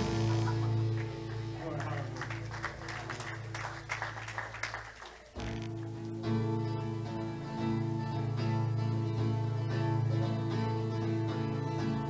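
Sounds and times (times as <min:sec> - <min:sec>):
guitars strumming chords: 0:00.0 - 0:02.2, 0:05.4 - 0:12.0
worship band playing: 0:00.0 - 0:04.3.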